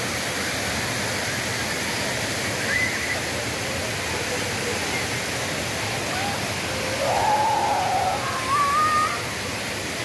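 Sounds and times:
fountain water splashing: 0.0 - 10.0
child calling out: 6.1 - 9.3.

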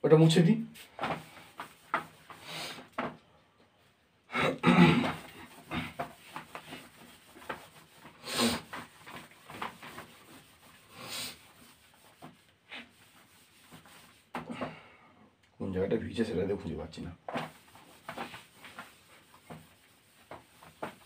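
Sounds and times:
board being wiped by hand: 0.6 - 3.2, 4.8 - 14.7, 17.3 - 21.0.

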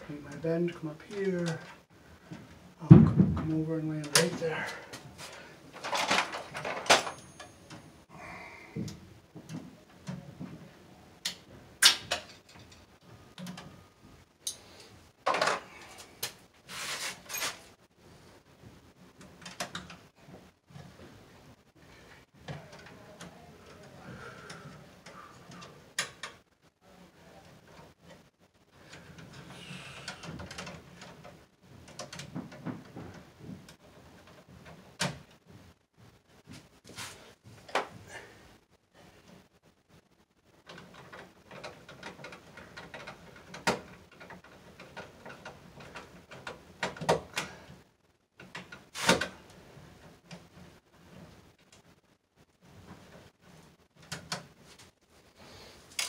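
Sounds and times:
wire rustling and scraping: 12.3 - 18.3, 36.4 - 38.1.

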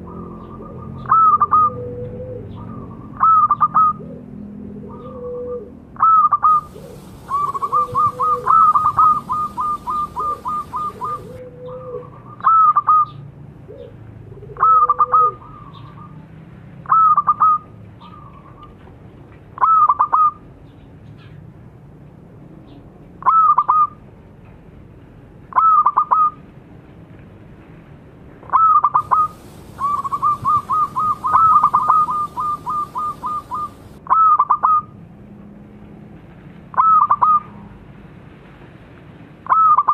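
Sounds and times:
dove cooing: 0.0 - 16.1, 28.5 - 34.8
lower softer dove coo: 0.0 - 16.2, 28.6 - 34.8.

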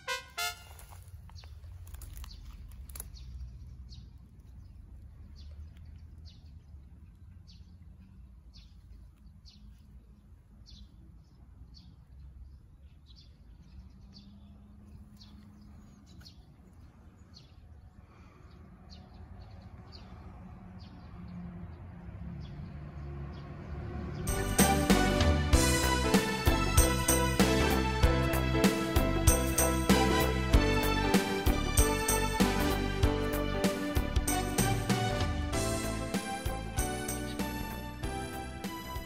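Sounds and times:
bird chirping: 29.4 - 39.0.

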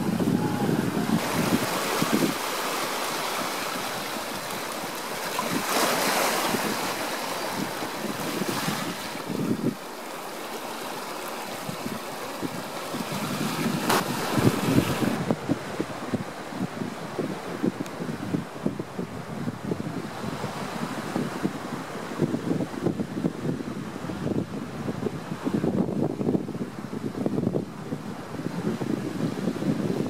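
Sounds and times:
wind buffeting microphone: 0.0 - 10.0, 11.2 - 30.0
sea surf rushing: 0.0 - 25.9.

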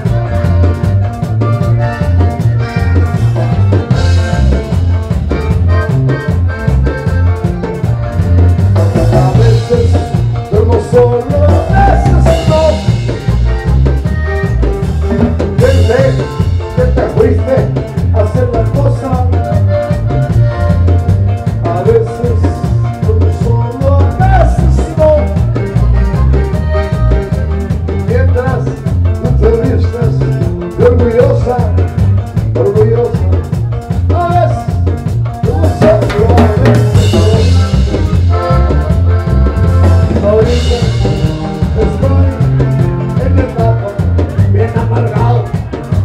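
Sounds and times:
acoustic guitar: 0.0 - 46.0
button accordion melody: 0.0 - 46.0
drum kit: 0.0 - 46.0
electric bass: 0.0 - 46.0.

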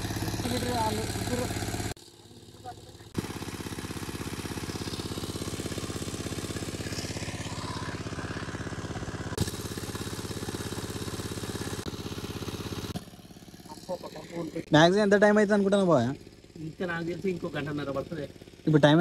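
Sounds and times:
water pump engine running: 0.0 - 19.0
water gushing from pipe: 3.2 - 13.1.

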